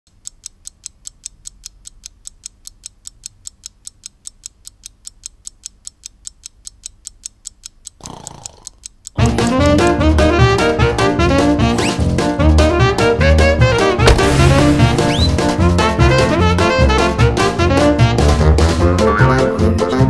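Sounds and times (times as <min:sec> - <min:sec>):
clock ticking fast: 0:00.1 - 0:09.8.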